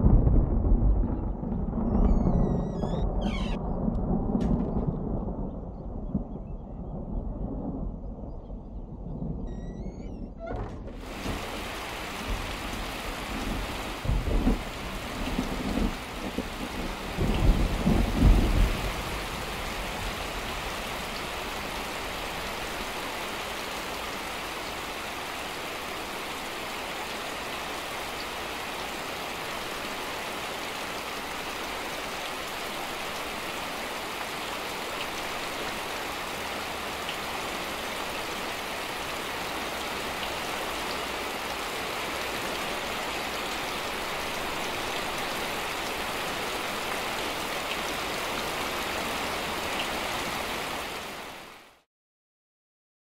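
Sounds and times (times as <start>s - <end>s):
rain falling: 0.0s - 10.2s, 10.8s - 51.9s
thunder rumbling: 0.0s - 24.9s.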